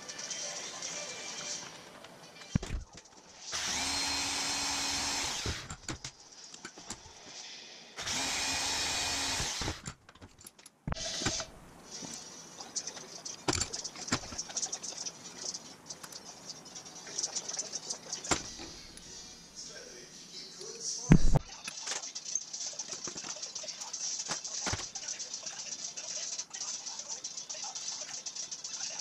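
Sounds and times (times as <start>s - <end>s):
electric power tool whine: 3.5s - 5.7s, 8.0s - 9.8s.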